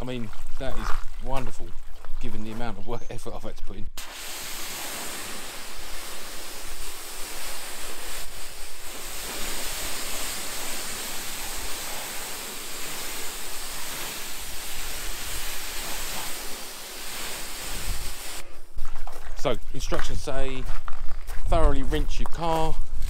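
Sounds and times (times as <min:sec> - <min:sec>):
pressure washer jet hissing: 0:04.0 - 0:18.5.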